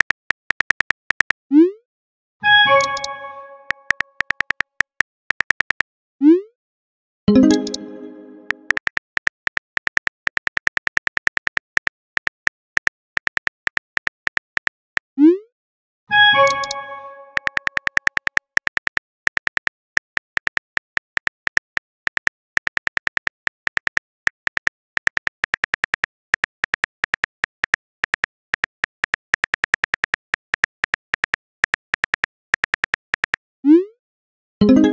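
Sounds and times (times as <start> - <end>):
keyboard typing clicks: 0.0 - 1.4, 2.6 - 5.8, 7.3 - 14.8, 16.3 - 33.4
multi-tone chime: 7.3 - 8.7, 34.6 - 34.9.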